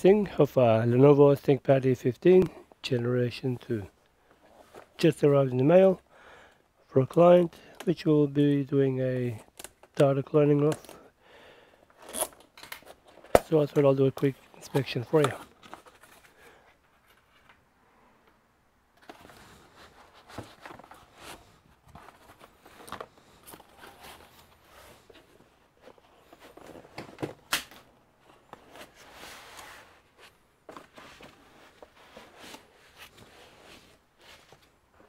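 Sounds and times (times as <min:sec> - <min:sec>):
cardboard scraping and rustling: 0:19.0 - 0:27.1, 0:28.2 - 0:34.8.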